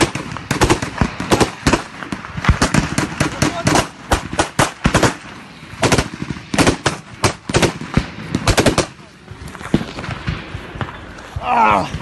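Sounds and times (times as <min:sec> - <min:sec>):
automatic gunfire bursts: 0:00.0 - 0:05.2, 0:05.8 - 0:09.0.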